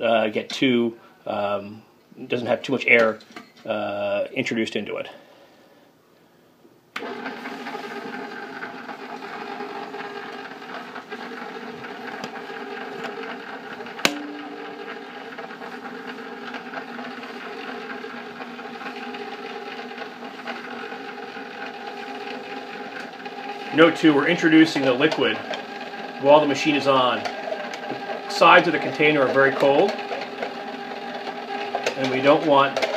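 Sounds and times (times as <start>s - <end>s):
ice cream maker motor hum: 7.0s - 32.9s.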